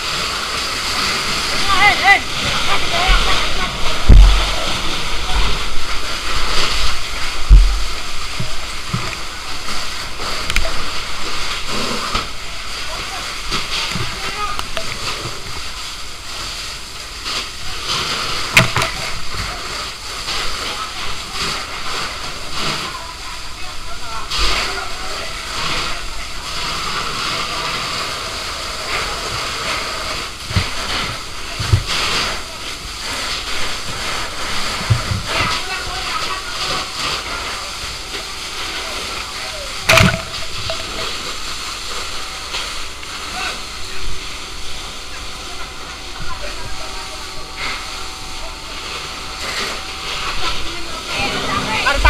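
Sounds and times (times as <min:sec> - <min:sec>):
water jet spraying and splashing: 0:00.0 - 0:52.0
dull low thumps: 0:03.1 - 0:06.0, 0:06.9 - 0:09.3
dull thumps: 0:39.9 - 0:41.0.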